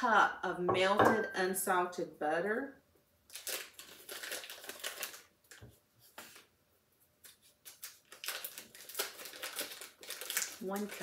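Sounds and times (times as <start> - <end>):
paper wrappers rustling: 3.3 - 6.5, 7.2 - 11.0.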